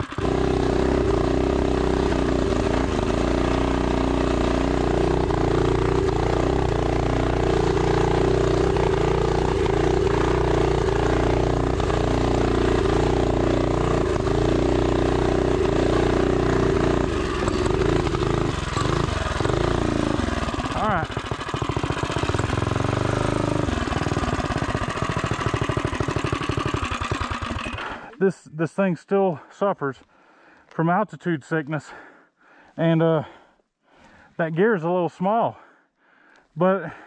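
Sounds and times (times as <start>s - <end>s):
small motorbike engine running hard: 0.0s - 28.2s.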